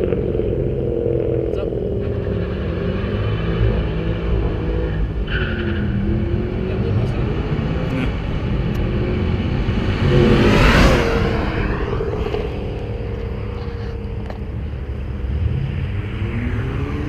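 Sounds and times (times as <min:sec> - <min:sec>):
car driving past: 0:07.9 - 0:17.0.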